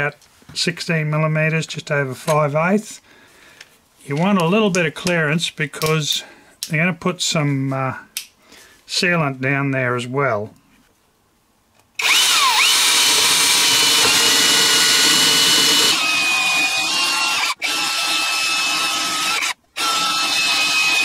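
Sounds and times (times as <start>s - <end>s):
cordless drill cutting with whine: 12.0s - 21.0s.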